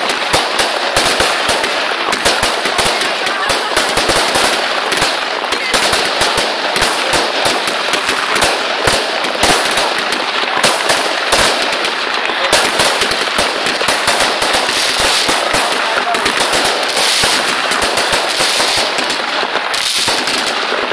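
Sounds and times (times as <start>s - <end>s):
fireworks crackling: 0.0s - 20.9s
heavy firework bangs: 0.0s - 20.9s.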